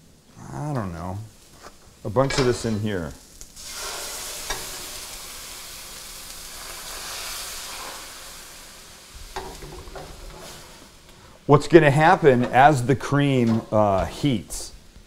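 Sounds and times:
cream sizzling in a hot pan: 0.8 - 12.2.

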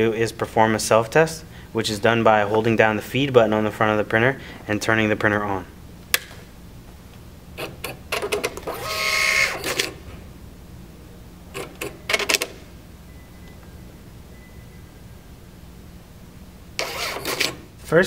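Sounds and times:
printer paper feed whirring: 7.6 - 10.0, 16.8 - 17.7
receipt printer clicking: 7.6 - 10.0, 11.6 - 12.6, 16.8 - 17.6.

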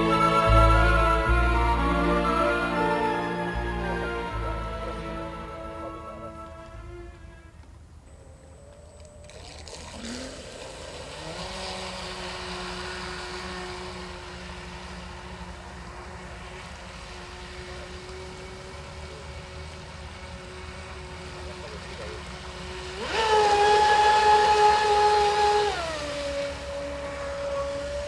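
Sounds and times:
model boat motor running: 0.0 - 28.0.

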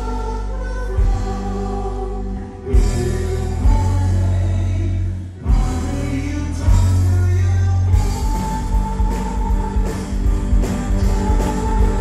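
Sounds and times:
harmony vocals singing: 0.0 - 12.0
live rock band: 0.0 - 12.0.

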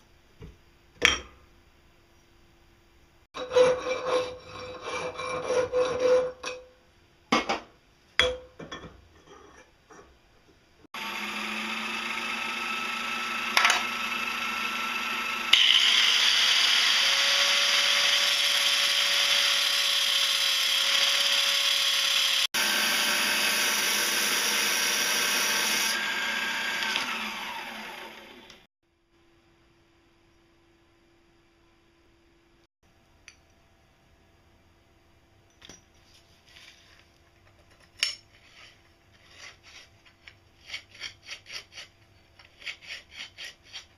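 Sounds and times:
angle grinder grinding steel: 11.0 - 28.7.

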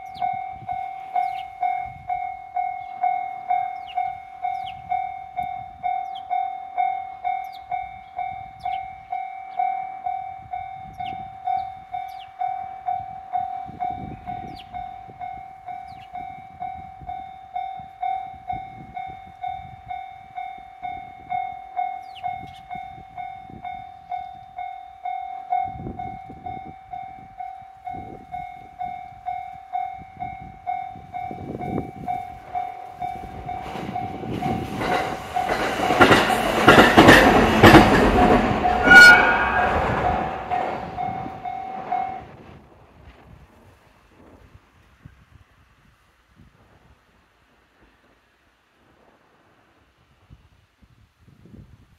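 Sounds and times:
railroad crossing warning bell: 0.0 - 42.6
train wheels rumbling on rails: 0.0 - 45.1
brief high-pitched note: 38.6 - 42.4.

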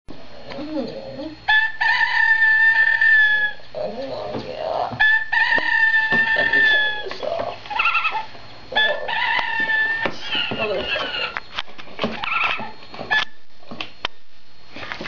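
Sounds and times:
alarm clock rooster crowing: 1.5 - 3.6, 5.0 - 11.4, 12.2 - 13.4.

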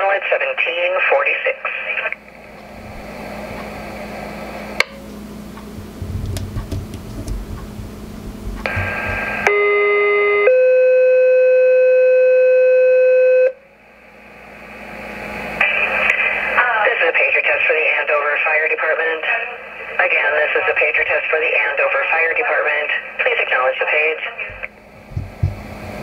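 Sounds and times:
radio hiss: 0.0 - 4.8, 8.6 - 9.5, 14.2 - 26.0.

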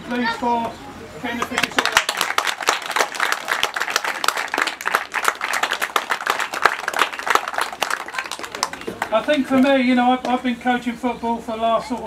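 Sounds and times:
small crowd applauding: 1.4 - 9.7.

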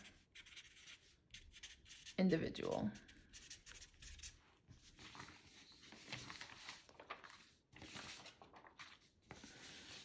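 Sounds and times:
marker writing on paper: 0.1 - 2.2, 3.3 - 4.4.

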